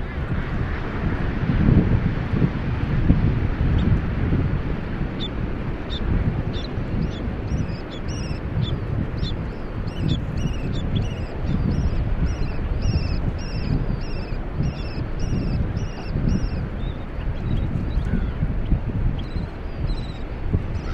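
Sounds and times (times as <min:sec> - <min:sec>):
wind noise on microphone: 0:00.0 - 0:20.9
terns calling: 0:05.2 - 0:20.9.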